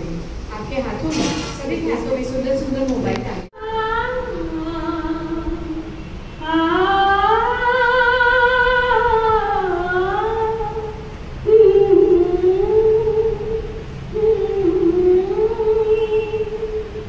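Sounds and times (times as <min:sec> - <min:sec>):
person singing long notes: 0:03.6 - 0:17.0.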